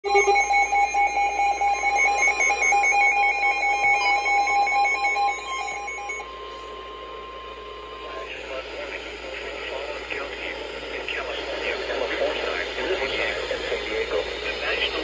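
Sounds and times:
electronic alarm tones: 0.0 - 9.2.

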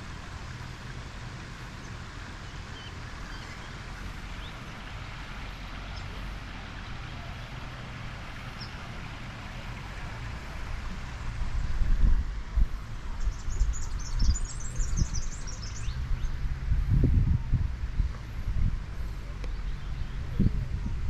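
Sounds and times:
wind rumble on microphone: 8.2 - 21.0.

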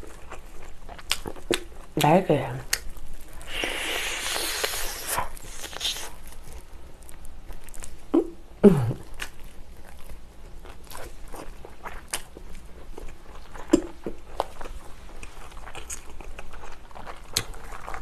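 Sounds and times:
chewing and biting chicken: 0.0 - 1.9, 2.7 - 8.0, 9.0 - 18.0
wet mouth clicks: 3.4 - 6.1, 13.7 - 14.0
person humming: 8.2 - 9.0.

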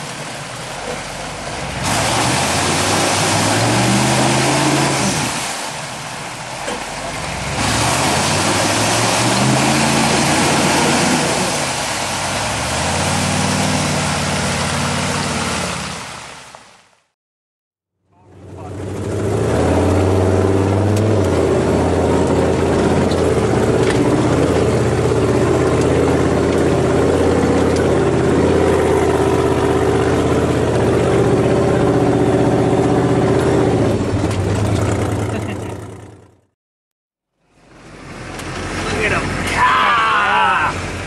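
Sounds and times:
vehicle engine running: 18.1 - 36.5.

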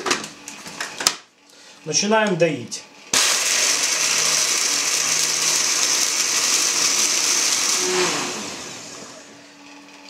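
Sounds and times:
blender grinding: 3.1 - 10.0.

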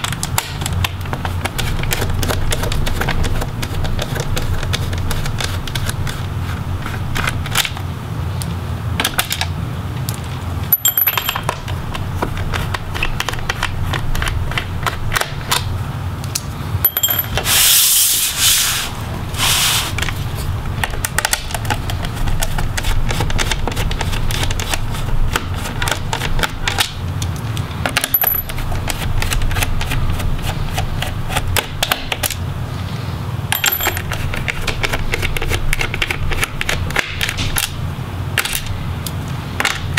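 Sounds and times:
steady low hum: 0.0 - 39.9
metal screws clinking: 10.7 - 11.6, 16.9 - 17.5, 28.1 - 28.5, 33.6 - 34.1.

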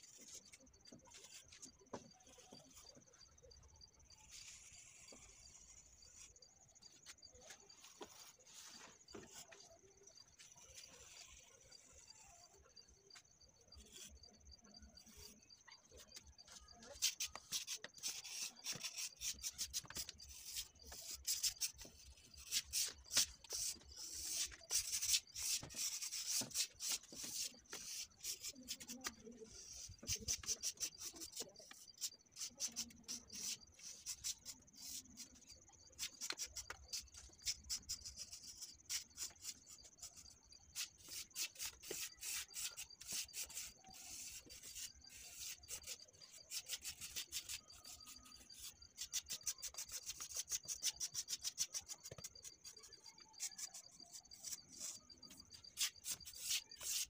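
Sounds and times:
hand tool scraping plaster wall: 16.5 - 35.3, 53.4 - 57.0.

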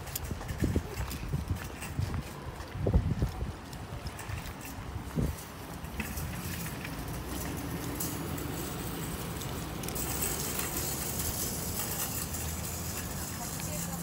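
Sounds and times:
moving vehicle rumble and hiss: 3.0 - 14.0.

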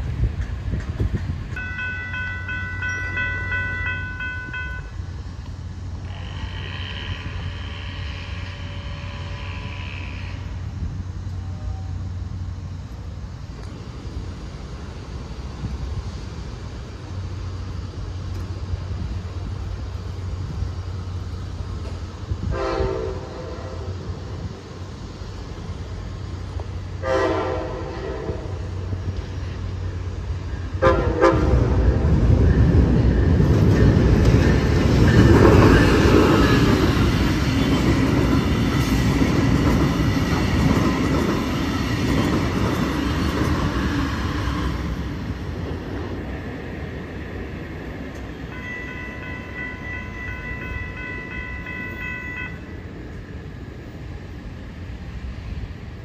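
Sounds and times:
train rumbling past: 0.0 - 56.0
train horn blasts: 1.6 - 5.0, 6.0 - 10.7, 22.4 - 24.2, 27.0 - 28.9, 30.8 - 31.8, 48.5 - 52.8
steady high ringing tone: 1.6 - 5.4, 48.3 - 53.0.

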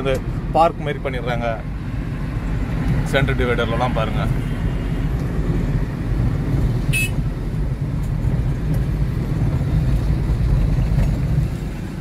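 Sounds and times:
van engine and tyres rumbling: 0.0 - 12.0.

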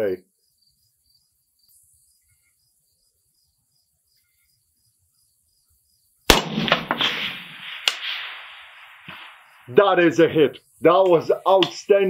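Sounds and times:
crickets chirping: 0.0 - 12.0
rifle shot with rolling echo: 6.3 - 9.8.

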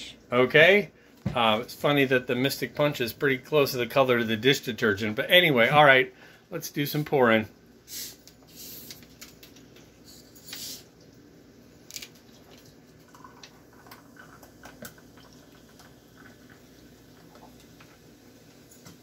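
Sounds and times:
faint fizzing: 7.8 - 19.0
soda bottle opening hiss: 7.9 - 9.2, 10.0 - 10.9
soda pouring over ice: 11.8 - 19.0.

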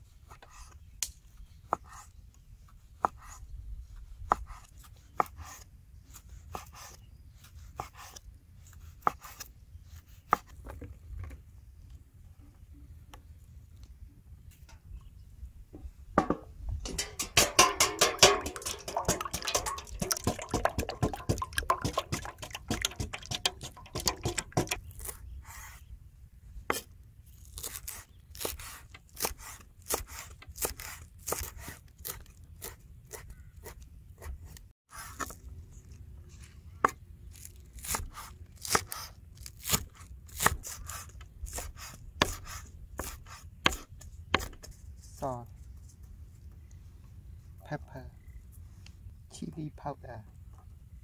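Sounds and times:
ladle scraping steel bowl: 16.2 - 25.0
cleaver chopping on wooden board: 17.2 - 25.2, 41.5 - 44.7.

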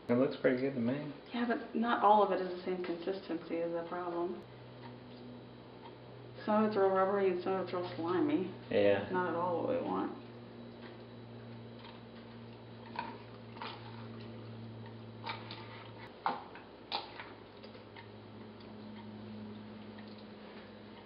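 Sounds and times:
low hum: 2.1 - 16.1.

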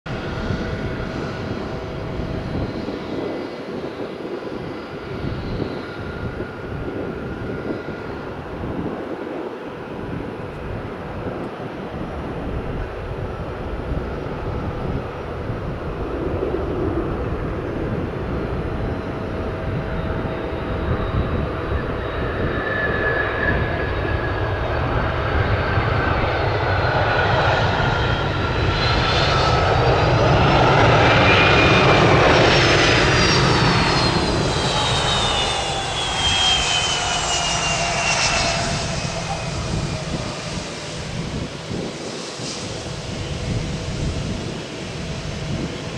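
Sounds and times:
jet engine noise: 0.1 - 45.9
engine whine dropping in pitch: 21.0 - 45.0.

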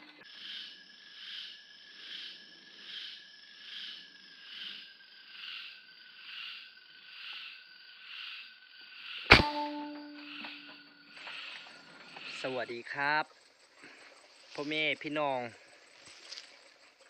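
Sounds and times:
rifle shot: 9.3 - 10.7.

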